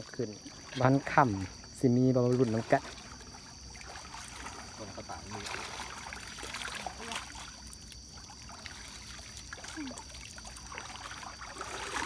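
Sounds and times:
river water splashing: 0.0 - 12.0.

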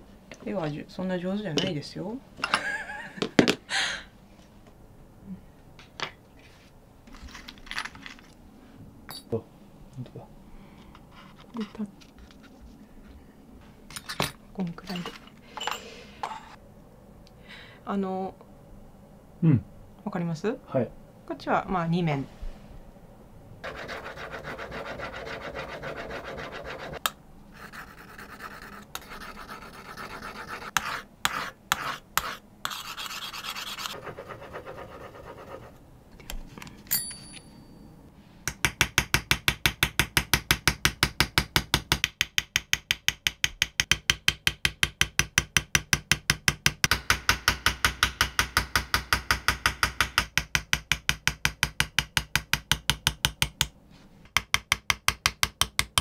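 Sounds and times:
steel tool scratching knife blade: 27.6 - 35.7
hammer tapping chisel on steel: 38.5 - 56.0.

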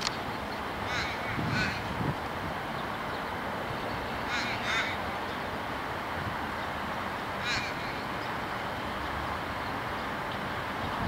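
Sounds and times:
bird calling: 0.0 - 2.0, 2.8 - 5.6, 7.4 - 9.0
steady background noise: 0.0 - 11.0.

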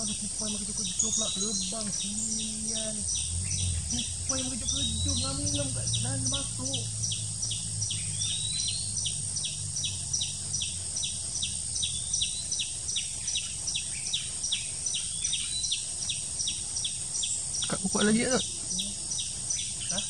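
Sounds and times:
high chirp repeating: 0.0 - 15.8
constant high hiss: 0.0 - 20.0
rising bird calls: 0.0 - 20.0.

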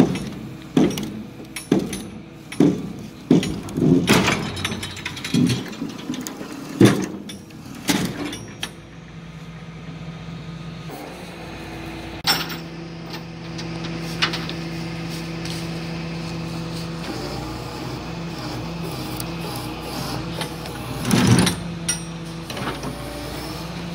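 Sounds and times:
sharp metal clanks: 0.0 - 9.4, 12.2 - 13.6, 20.3 - 22.8
tow truck running hum: 0.0 - 23.9.

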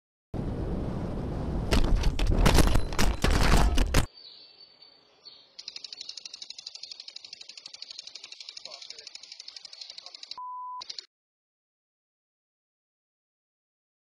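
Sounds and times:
rushing wind and road noise: 0.4 - 3.9
sharp bangs and clatter: 1.7 - 4.1
impact sprinkler ticking: 5.6 - 11.1.

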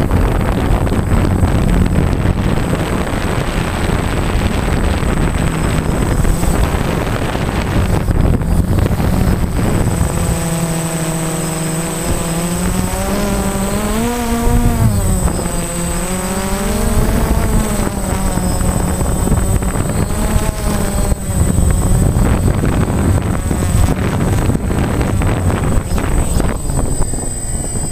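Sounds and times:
aircraft motor and propeller droning: 0.0 - 27.9
faint high whine: 0.0 - 27.9
wind rushing over microphone: 0.0 - 27.9.

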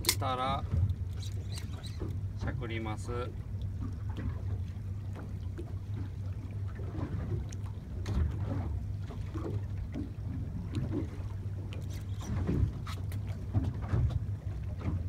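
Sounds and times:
water lapping against boat hull: 0.0 - 15.0.

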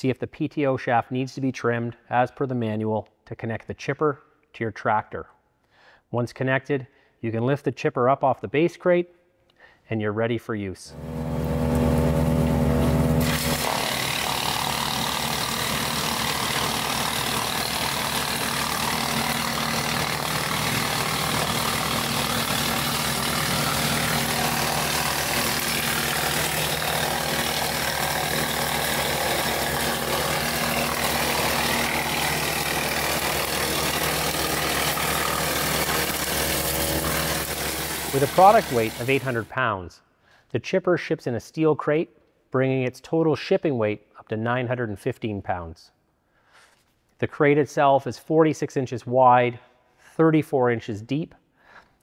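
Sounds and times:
wood chipper rushing noise: 10.9 - 39.5
tractor engine drone: 11.0 - 39.4.

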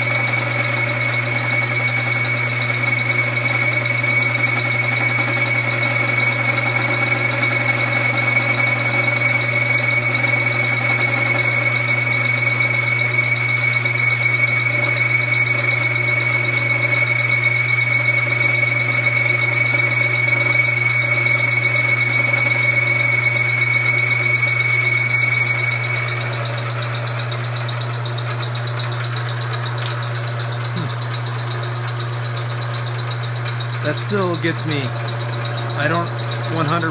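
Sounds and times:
high milling whine: 0.0 - 36.9
milling machine hum: 0.0 - 36.9
single click: 29.8 - 30.0.

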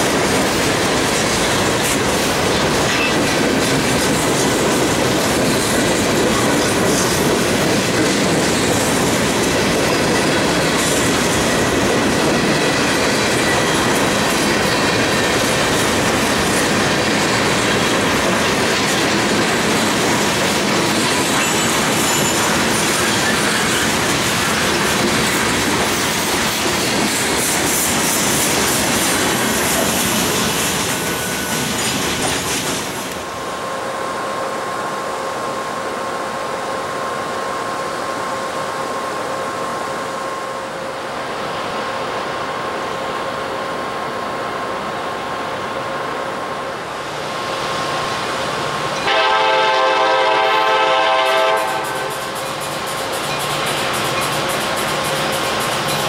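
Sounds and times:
distant diesel locomotive drone: 0.0 - 56.0
train wheels rushing on rails: 0.0 - 56.0
high wheel squeal: 21.0 - 24.6.

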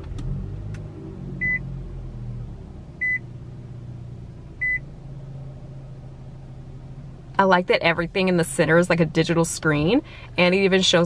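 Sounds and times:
car engine idling: 0.0 - 11.0
dashboard warning chime beeps: 1.4 - 1.6, 3.0 - 3.2, 4.6 - 4.8.

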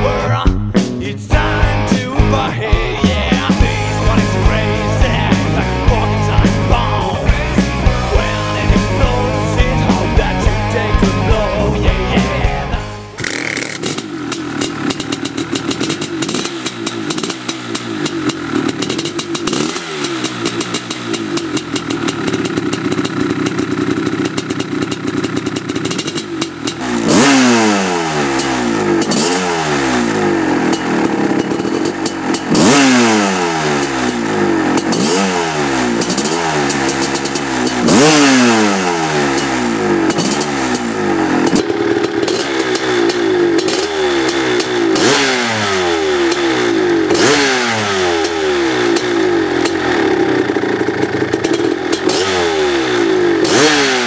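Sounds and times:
motorcycle engine idling and revving: 0.0 - 54.0.

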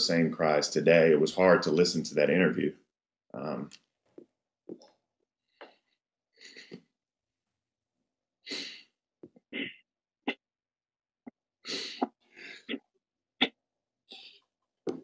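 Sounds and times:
person speaking: 0.0 - 2.7, 3.4 - 3.8
person sniffing and gasping: 8.5 - 8.9, 11.7 - 12.8.

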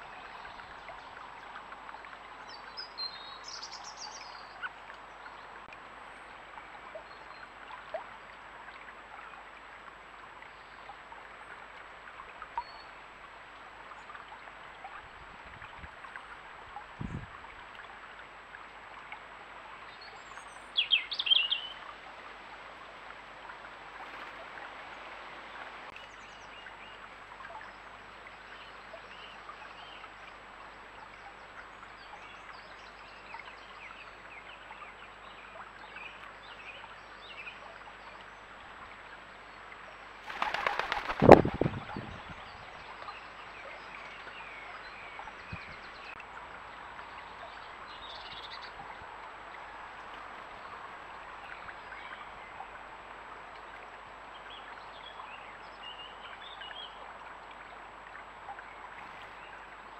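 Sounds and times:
shallow stream running: 0.0 - 59.9
small birds chirping faintly: 16.0 - 59.9
bird wings flapping: 40.2 - 42.0.

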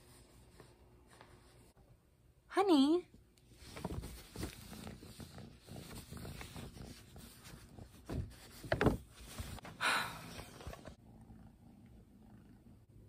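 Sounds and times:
cat rustling paper: 3.5 - 9.7.

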